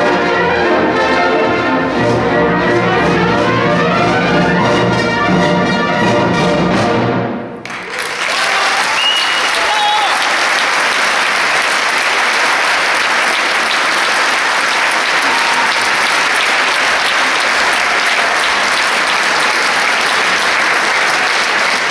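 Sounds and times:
audience applauding: 0:07.6 - 0:21.9.

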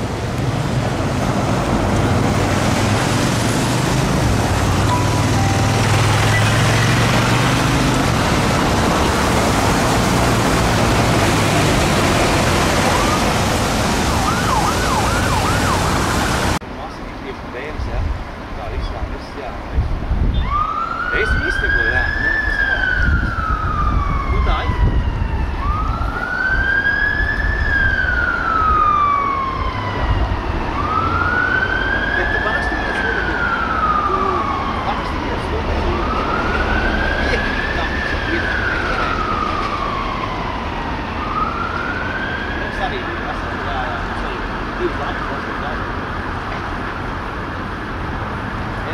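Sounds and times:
heavy city traffic: 0:00.0 - 0:48.9
police siren yelping: 0:04.0 - 0:08.1, 0:10.4 - 0:16.6, 0:20.4 - 0:45.9.

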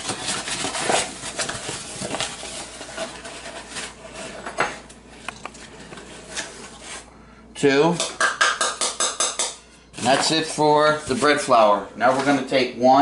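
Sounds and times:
paper bag crinkling: 0:00.0 - 0:04.4.

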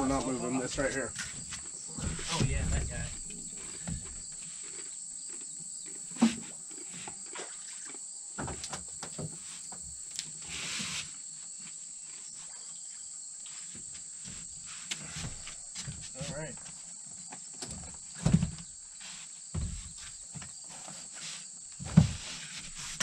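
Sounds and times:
insects trilling: 0:00.0 - 0:23.0
rustling hiss: 0:09.1 - 0:12.4.

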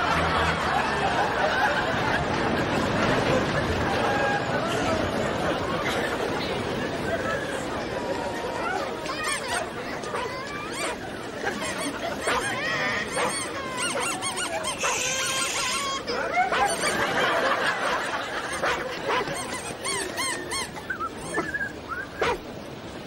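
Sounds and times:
crowd voices: 0:00.0 - 0:23.0
high calls and squeals: 0:10.2 - 0:17.1.

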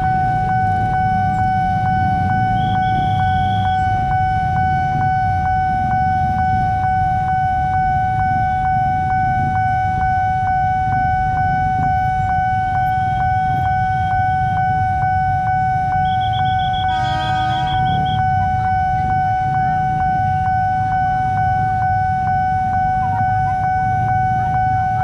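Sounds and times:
level crossing warning bell: 0:00.0 - 0:25.0
motorcycle engines idling: 0:00.1 - 0:05.1, 0:15.4 - 0:22.0.

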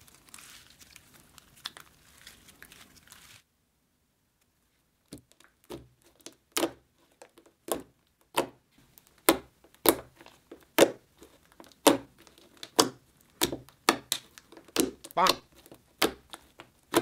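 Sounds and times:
slime squelchy pops and clicks: 0:11.7 - 0:15.4.

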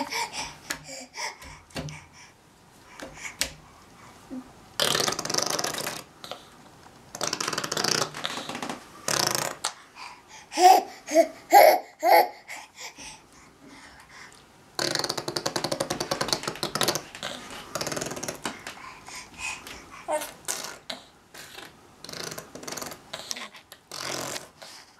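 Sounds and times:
baby blowing raspberries: 0:04.8 - 0:06.5, 0:07.1 - 0:13.2, 0:14.8 - 0:24.9
baby laughing: 0:10.6 - 0:12.5.

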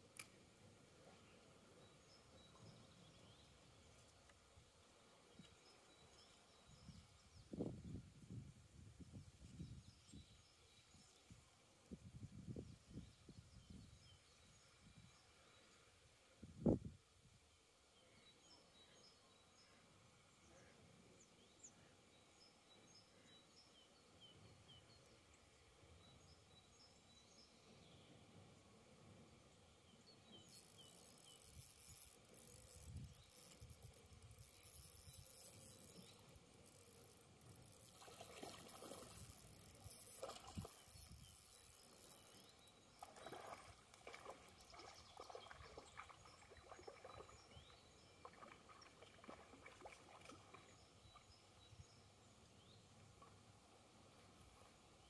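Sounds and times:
faint bird chirps: 0:17.5 - 0:53.4
faint rustling and clicking: 0:30.4 - 0:45.8.

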